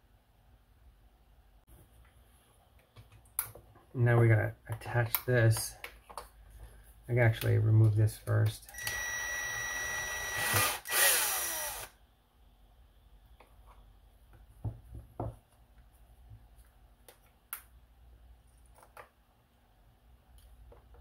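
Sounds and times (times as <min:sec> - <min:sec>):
faint clicks of parts handled: 0:04.7 - 0:08.8
electric screwdriver running: 0:08.7 - 0:12.0.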